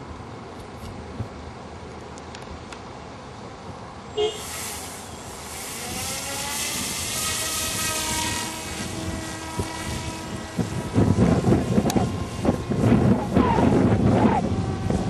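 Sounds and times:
rc plane motor whine: 4.2 - 15.0.

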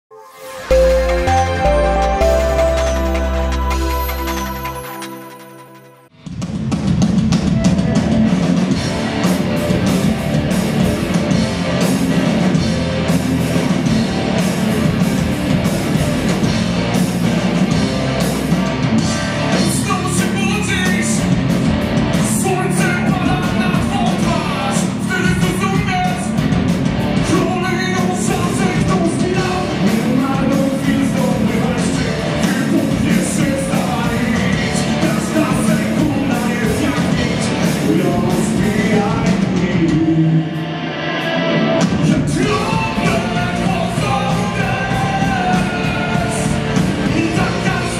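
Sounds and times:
lead vocals: 0.1 - 6.0, 27.3 - 40.6, 41.8 - 47.9
drums: 0.4 - 47.9
bass guitar: 6.2 - 47.9
electric guitars: 7.0 - 47.9.

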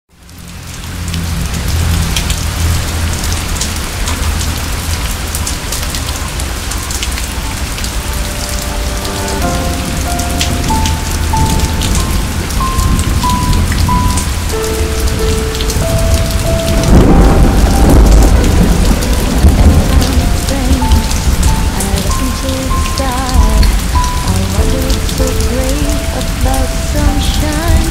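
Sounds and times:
heavy rain: 0.1 - 27.9
thunder rumbling: 0.4 - 27.9
slow melody of held notes: 5.7 - 27.9.

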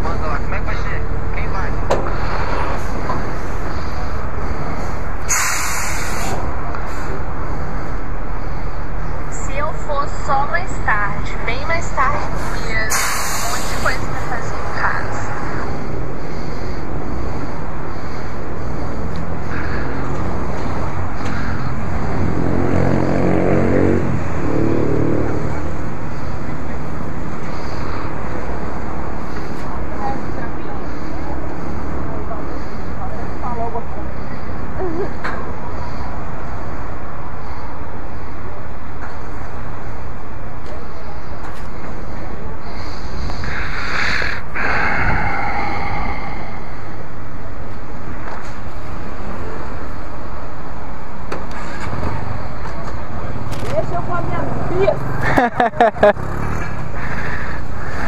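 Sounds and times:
short burst of hiss: 5.3 - 6.4
vehicle engine running: 44.4 - 58.0.

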